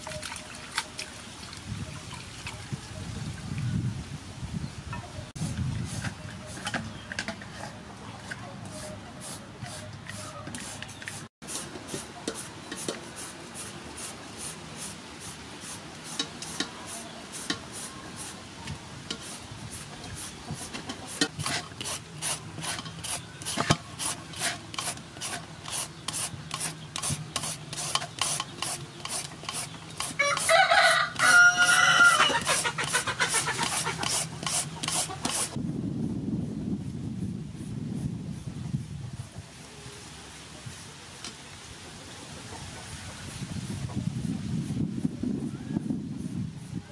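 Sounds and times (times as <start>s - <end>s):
hand shredder rasping papaya: 19.1s - 35.6s
rooster crowing: 30.2s - 32.4s.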